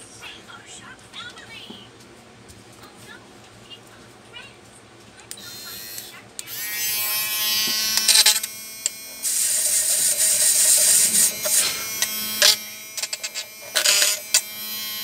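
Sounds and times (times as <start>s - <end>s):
electric screwdriver whirring: 5.8s - 15.0s.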